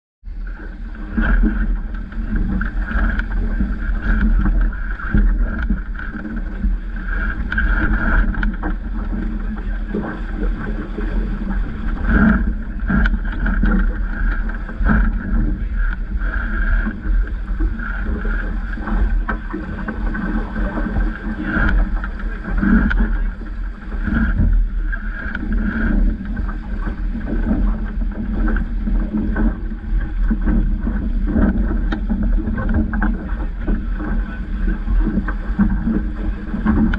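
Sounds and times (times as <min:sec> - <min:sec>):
water rushing along hull: 0:00.2 - 0:36.9
wind buffeting microphone: 0:00.2 - 0:36.9
splashes and knocks against bow: 0:00.7 - 0:36.9.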